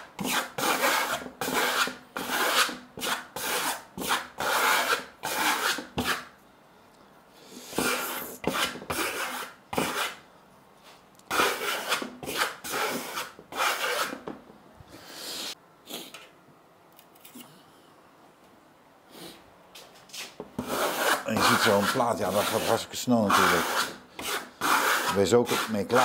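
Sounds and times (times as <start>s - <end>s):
trowel scraping plaster: 0.2s - 6.3s, 7.7s - 10.2s, 11.3s - 14.2s, 20.6s - 26.0s.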